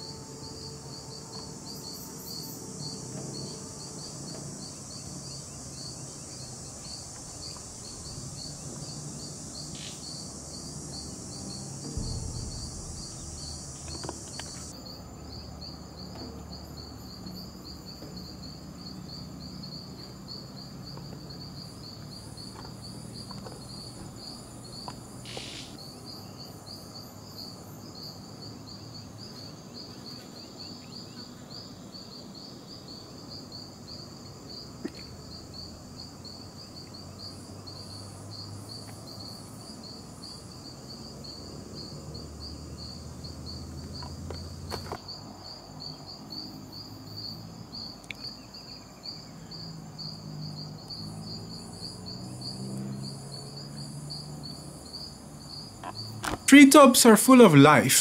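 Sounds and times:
insect chirping: 0:00.0 - 0:58.0
insects buzzing: 0:00.0 - 0:58.0
low hum: 0:06.3 - 0:14.8.

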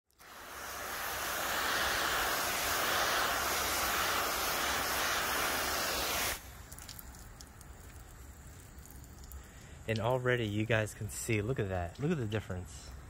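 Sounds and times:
water spray hissing on car: 0:00.0 - 0:09.8.

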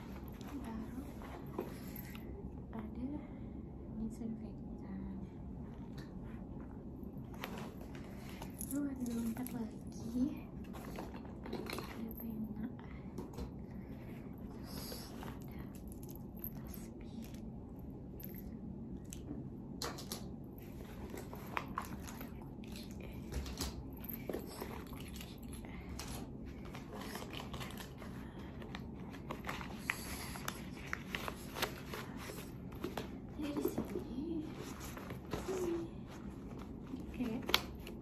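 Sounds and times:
low steady hum: 0:00.0 - 0:38.0
hands rummaging in handbag: 0:07.2 - 0:17.5, 0:20.6 - 0:38.0.

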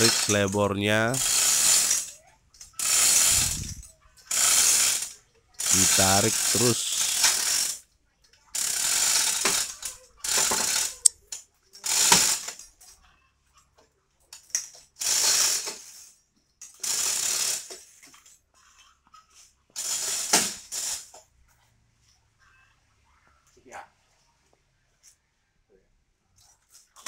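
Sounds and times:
chain rattling: 0:00.0 - 0:00.6
chain hoist ratcheting: 0:00.0 - 0:13.0, 0:14.3 - 0:18.4, 0:19.3 - 0:21.2.

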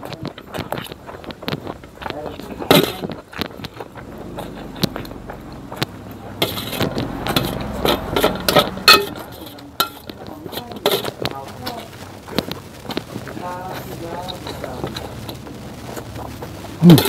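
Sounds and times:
noodles slurped and chewed: 0:00.0 - 0:17.0
cutlery clinking on steel plate: 0:06.4 - 0:11.8.

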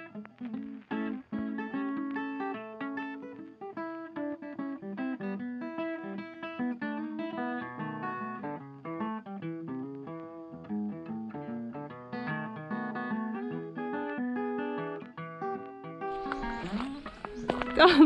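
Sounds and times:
acoustic guitar plucking: 0:00.0 - 0:18.0.

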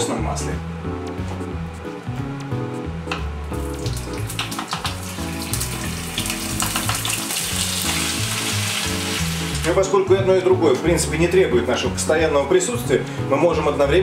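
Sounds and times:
background music with bass: 0:00.0 - 0:14.0
seafood sizzling in hot oil: 0:03.7 - 0:09.7.

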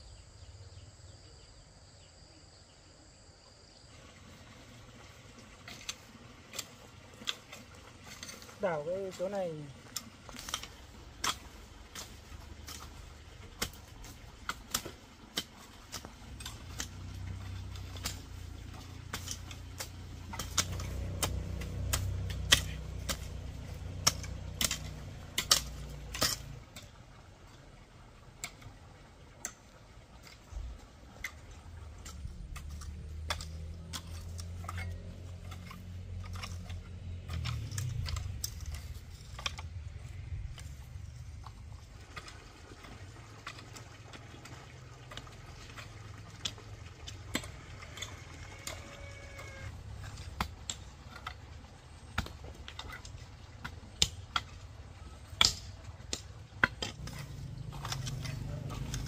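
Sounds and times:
low rumble: 0:30.5 - 0:43.0
hand tool clicks and knocks: 0:55.2 - 0:59.0.

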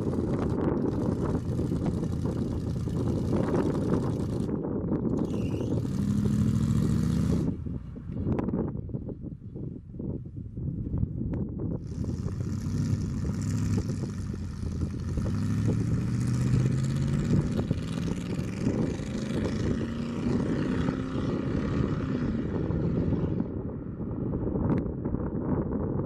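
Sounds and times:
pickup truck engine accelerating: 0:00.0 - 0:07.6, 0:11.8 - 0:23.5.

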